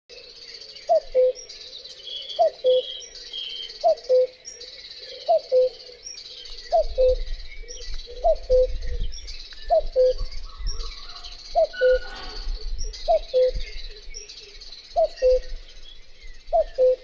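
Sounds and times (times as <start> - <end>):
cuckoo calling: 0.9 - 9.0, 9.6 - 13.8, 15.0 - 15.6, 16.5 - 17.0
high chirping: 9.5 - 13.8.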